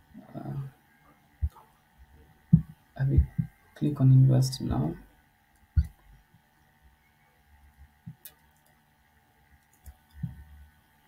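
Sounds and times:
faint electrical hum: 0.0s - 11.0s
soft low thump: 2.5s - 3.6s
computer mouse clicks: 8.1s - 8.8s, 9.6s - 10.4s.

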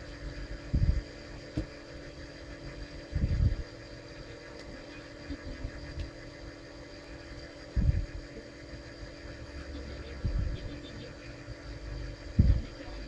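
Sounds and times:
steady mechanical hum: 0.0s - 13.0s
dull low thumps of shell: 0.7s - 1.8s, 12.4s - 12.6s.

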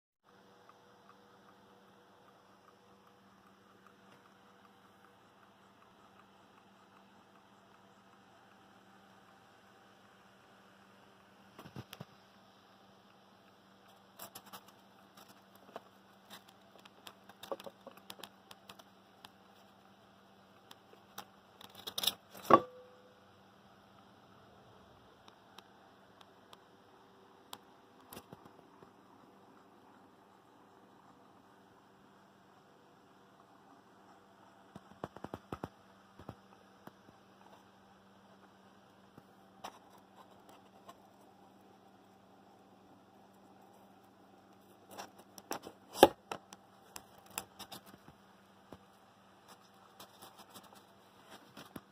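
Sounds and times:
low hum: 22.3s - 45.3s
sharp knock with ringing: 22.5s - 23.0s.

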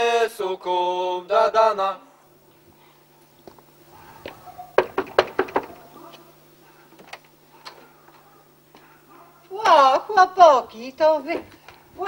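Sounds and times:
knocking on wooden door: 4.8s - 5.8s.

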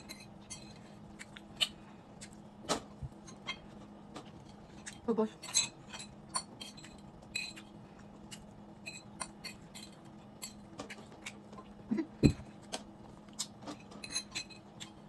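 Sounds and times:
steady low hum: 0.0s - 15.0s
metal spoon clinking on a plate: 13.8s - 14.6s.

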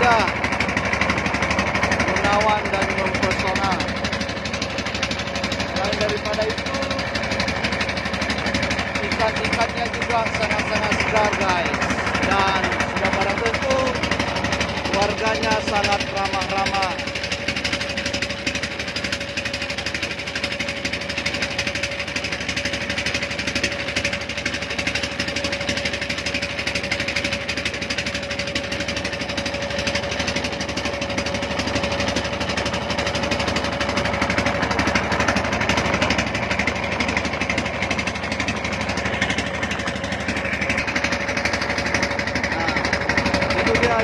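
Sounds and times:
boat diesel engine running: 0.0s - 44.0s.

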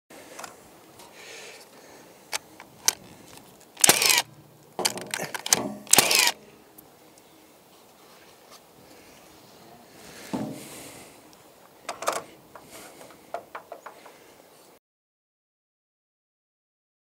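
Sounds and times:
cordless drill driving screws: 3.8s - 6.4s.

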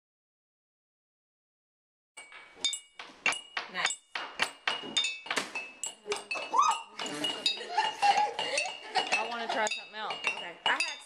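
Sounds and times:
sticks tapping water-filled glass jars: 2.2s - 11.0s.

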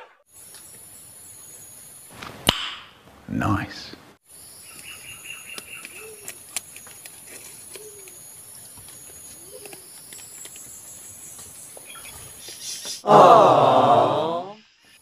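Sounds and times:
dove cooing: 5.8s - 6.4s, 7.3s - 8.2s, 9.1s - 9.9s.

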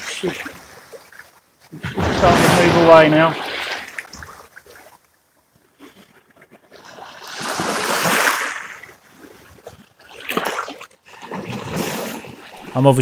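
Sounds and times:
wave washing over shallows: 1.7s - 4.3s.

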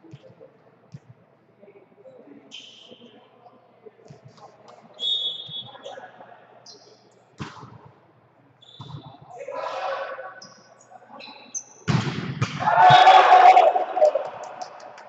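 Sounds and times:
referee's whistle: 5.0s - 5.8s, 8.6s - 9.2s
volleyball being struck: 11.9s - 13.2s
players calling out: 12.6s - 15.0s.

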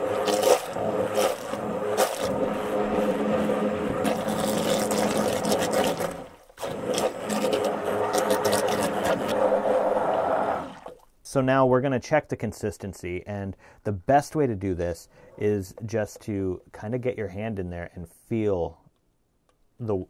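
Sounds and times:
immersion blender motor hum: 0.0s - 10.9s.

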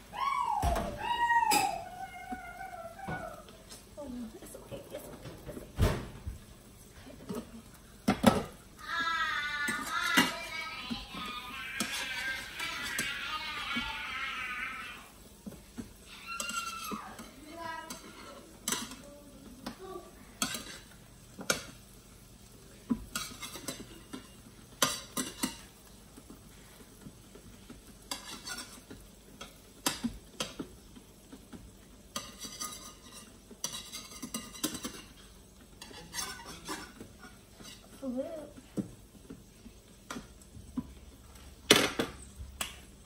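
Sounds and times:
zucchini sizzling: 0.0s - 43.0s
utensils scraping frying pan: 7.2s - 41.6s.

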